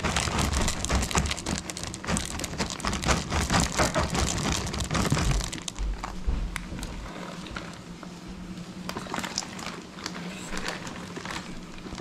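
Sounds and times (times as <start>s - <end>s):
chocolate chips pattering into bowl: 0.0s - 5.8s.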